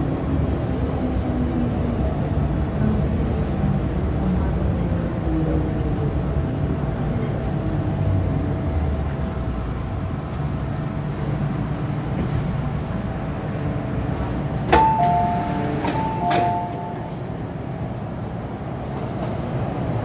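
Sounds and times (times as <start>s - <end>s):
train rumbling to a stop: 0.0s - 20.0s
two-note chime: 14.8s - 17.2s.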